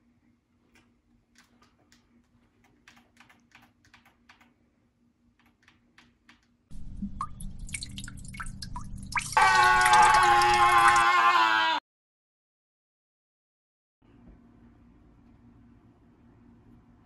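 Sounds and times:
game controller buttons clicking: 1.4s - 4.5s
running water with drips: 6.7s - 10.6s.

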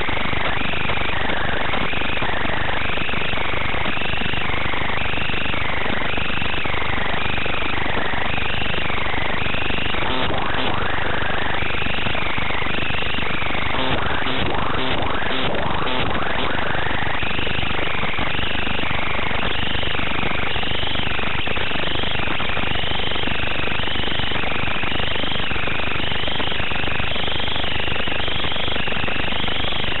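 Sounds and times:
drone motors buzzing and whining: 7.9s - 18.8s.

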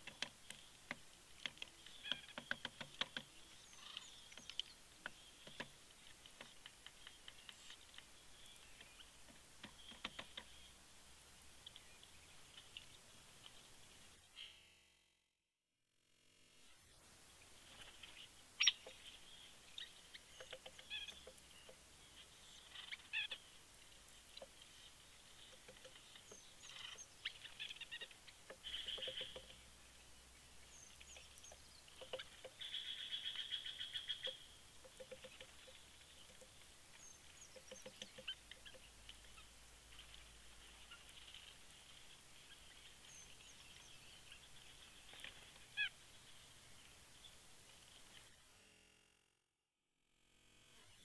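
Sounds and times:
small birds chirping: 0.0s - 14.8s, 16.2s - 48.4s
fast bird trill: 25.6s - 29.6s.

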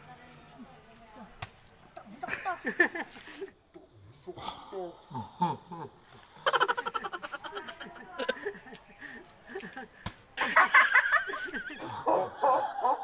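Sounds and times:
children laughing and calling: 2.0s - 3.6s, 6.4s - 13.0s.

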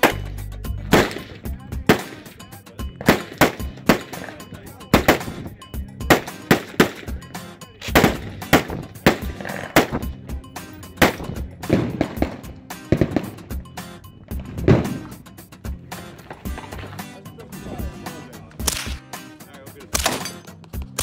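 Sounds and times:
background music: 0.0s - 21.0s
rifle shots: 0.9s - 2.3s, 3.0s - 5.4s, 6.1s - 7.2s, 7.9s - 10.2s, 11.0s - 13.5s, 18.6s - 19.0s, 19.9s - 20.4s.

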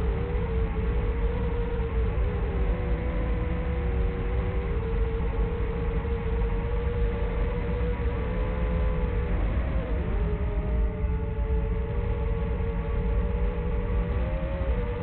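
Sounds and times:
low wind rumble: 0.0s - 15.0s.

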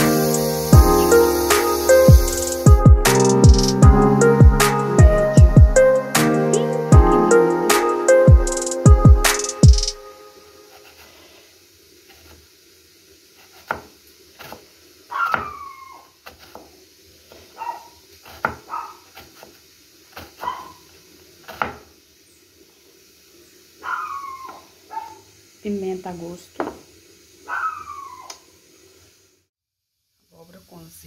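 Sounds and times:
knife chopping on cutting board: 13.4s - 14.6s, 15.2s - 15.6s, 18.2s - 20.5s, 21.4s - 21.9s
pet animal crying: 15.1s - 16.1s, 23.8s - 25.2s, 27.5s - 28.4s.

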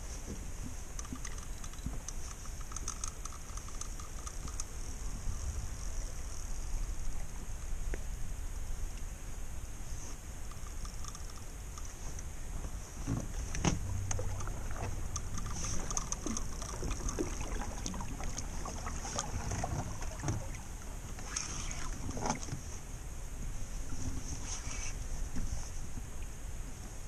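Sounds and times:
water lapping against boat hull: 0.0s - 8.2s, 9.9s - 26.9s
wind rumble on microphone: 0.0s - 27.0s
small knocks and splashes: 13.0s - 22.6s.

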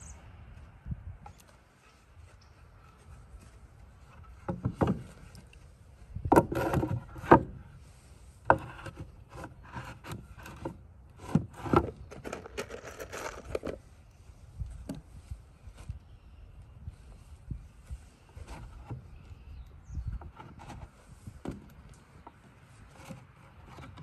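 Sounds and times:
boards scraping together: 6.3s - 7.6s, 8.5s - 13.8s
rummaging in plastic tub: 11.7s - 13.8s.

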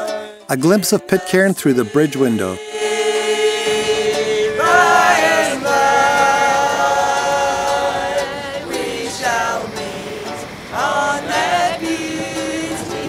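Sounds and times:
choir singing held notes: 0.0s - 13.0s.

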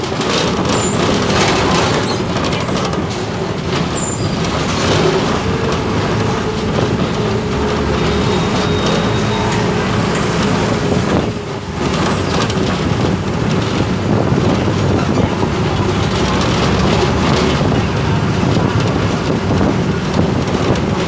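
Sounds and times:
bus engine and road noise: 0.0s - 21.0s.

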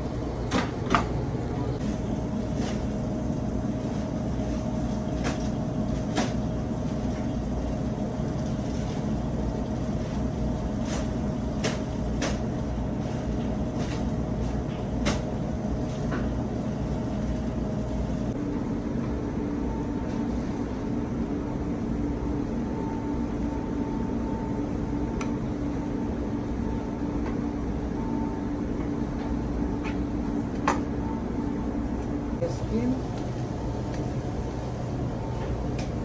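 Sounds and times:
kitchen machinery humming: 0.0s - 36.0s
faint steady whine: 15.4s - 36.0s.

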